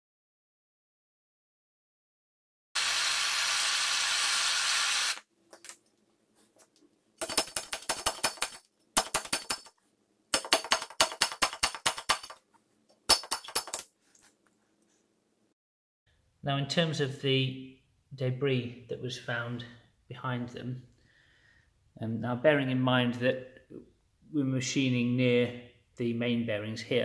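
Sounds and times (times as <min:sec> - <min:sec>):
blowtorch flame hissing: 0:02.8 - 0:05.2
rapid sharp metallic knocks: 0:07.2 - 0:09.7, 0:10.3 - 0:12.4.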